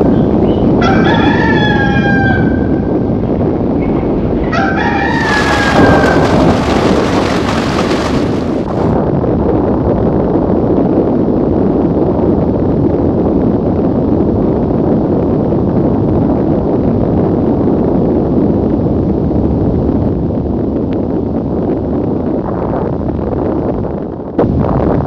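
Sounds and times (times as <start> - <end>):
thunder rumbling: 2.6 - 9.0.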